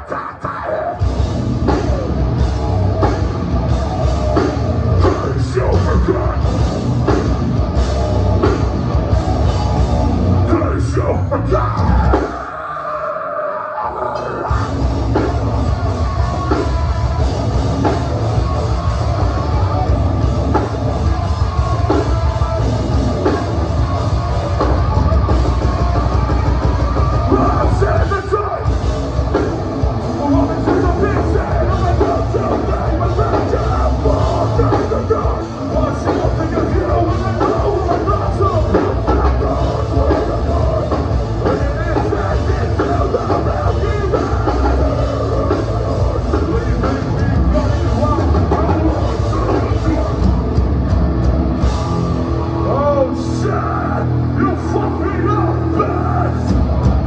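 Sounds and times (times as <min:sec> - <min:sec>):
live heavy metal band: 0:00.0 - 0:57.0
person singing into microphone: 0:04.9 - 0:06.6, 0:10.4 - 0:29.4, 0:30.0 - 0:50.3.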